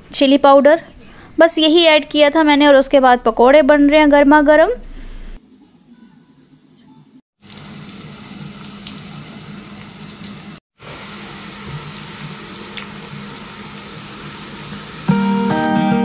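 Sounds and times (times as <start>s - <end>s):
food sizzling in hot oil: 7.4s - 15.7s
plucked-string background music: 15.1s - 16.0s.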